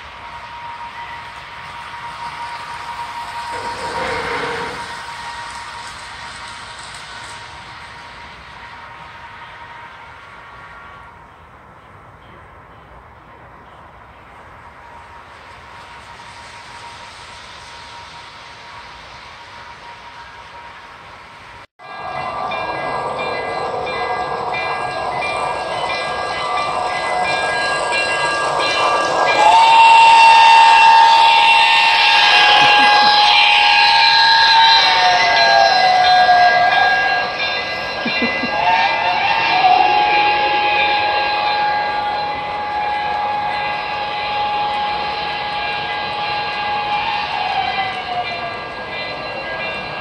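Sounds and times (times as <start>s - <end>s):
model steam locomotive running: 0.0s - 50.0s
high-pitched whine: 21.8s - 50.0s.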